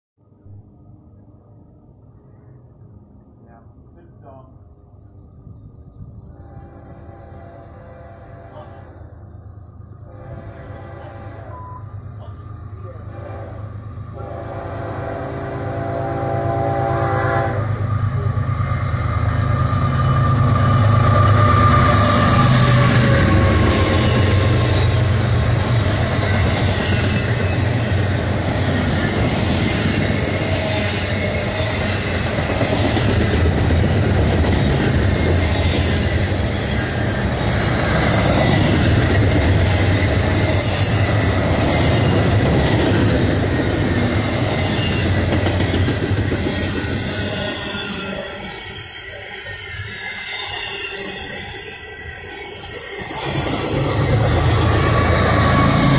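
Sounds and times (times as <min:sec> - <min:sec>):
locomotive engine rumble: 0:00.3 - 0:47.2, 0:52.8 - 0:55.9
locomotive air horn: 0:06.2 - 0:09.2, 0:10.0 - 0:11.8, 0:13.0 - 0:17.8
freight cars rolling over rails: 0:17.7 - 0:55.9.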